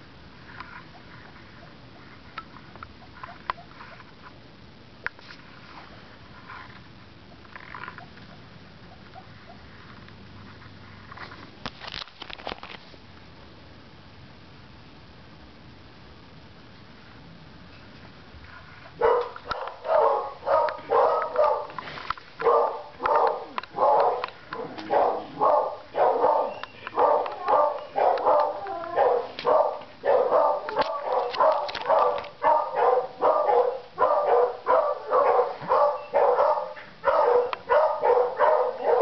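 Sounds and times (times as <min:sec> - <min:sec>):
dog barking: 0:19.0 - 0:21.8, 0:22.4 - 0:39.0.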